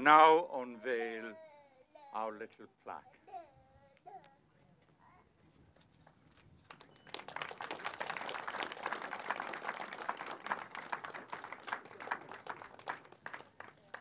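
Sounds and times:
small crowd applauding: 0:06.0 - 0:14.0.

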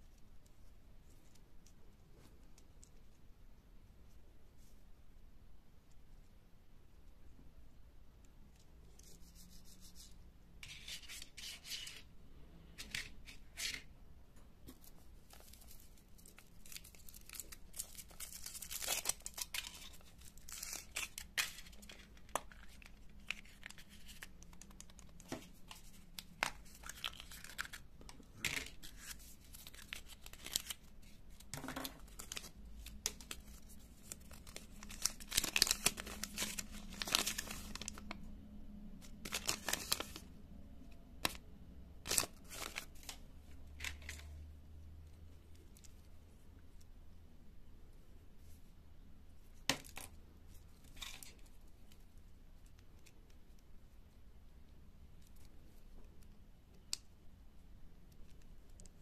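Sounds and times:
foil wrapper crinkling and tearing: 0:15.3 - 0:25.1, 0:26.5 - 0:27.8, 0:28.7 - 0:31.4, 0:32.0 - 0:38.0, 0:39.1 - 0:40.2.

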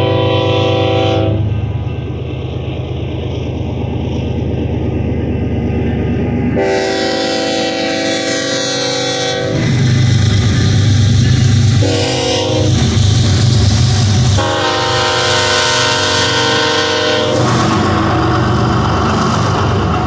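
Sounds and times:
locomotive air horn blasts: 0:00.0 - 0:01.5, 0:06.6 - 0:09.7, 0:11.8 - 0:12.9, 0:14.4 - 0:17.5
diesel engine rumble: 0:00.0 - 0:16.0.

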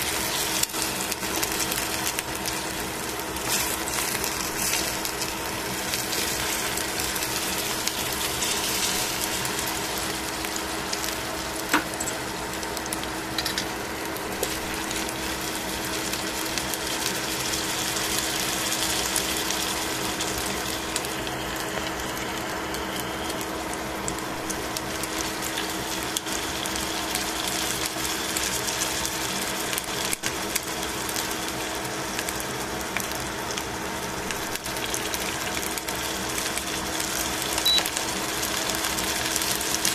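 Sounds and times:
steady hum: 0:00.0 - 0:28.0
chicken wings sizzling in pan: 0:00.0 - 0:39.9.

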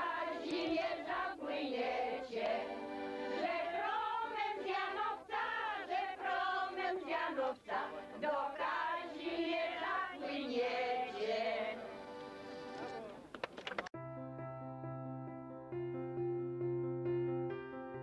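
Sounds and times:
choir singing: 0:00.0 - 0:13.0.

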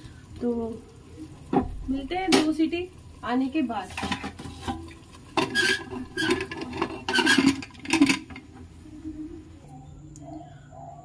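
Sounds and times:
pressure cooker lid clanking: 0:05.4 - 0:08.4.

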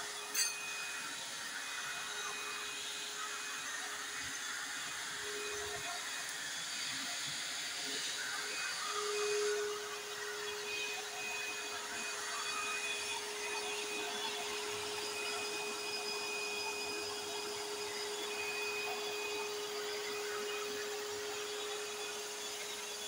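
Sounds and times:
vacuum cleaner motor whine: 0:00.0 - 0:23.0.

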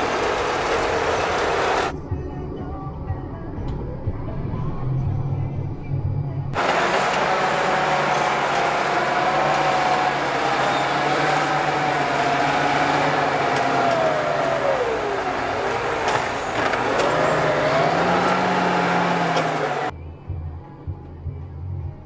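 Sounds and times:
tractor engine under load: 0:00.0 - 0:01.9, 0:06.6 - 0:19.9.

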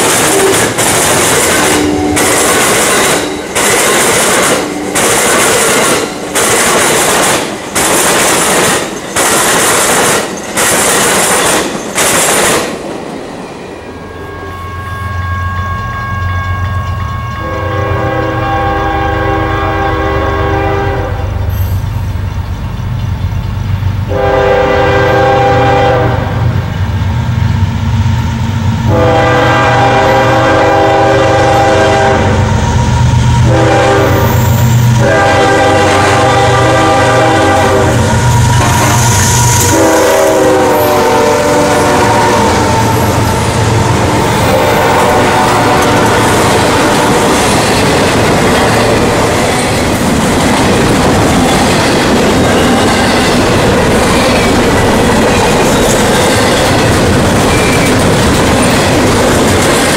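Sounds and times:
train wheels clicking over rail joints: 0:00.0 - 0:13.4, 0:15.2 - 0:18.9, 0:21.4 - 0:24.2, 0:35.8 - 0:59.9
locomotive air horn blasts: 0:01.6 - 0:02.6, 0:14.1 - 0:21.5, 0:24.1 - 0:26.5, 0:28.9 - 0:32.5, 0:33.4 - 0:47.4.

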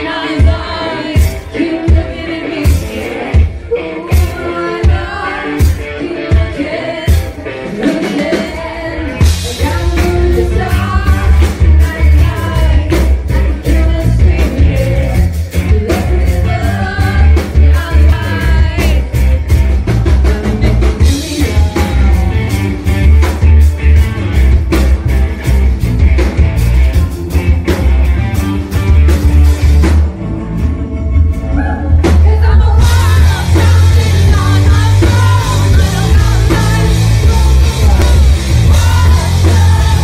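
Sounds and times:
woman singing: 0:00.0 - 0:22.6, 0:31.5 - 0:40.0
live rock band playing: 0:00.0 - 0:40.0.

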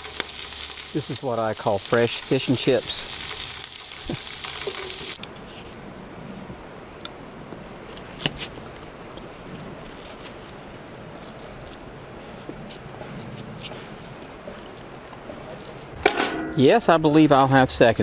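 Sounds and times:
fish and potatoes sizzling in a pan: 0:00.0 - 0:05.2.

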